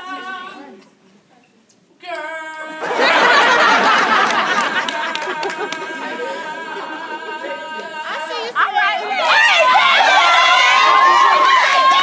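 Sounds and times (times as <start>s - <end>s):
audience cheering and chatter: 8.5s - 12.0s.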